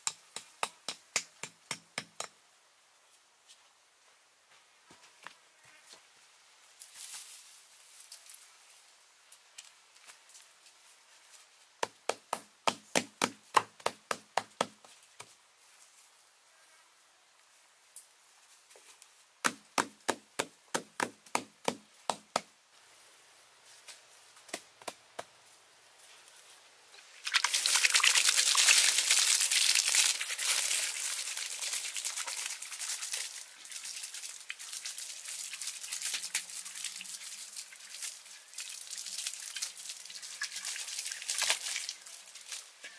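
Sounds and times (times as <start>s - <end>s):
water splashing on moss: 27.2s - 42.7s.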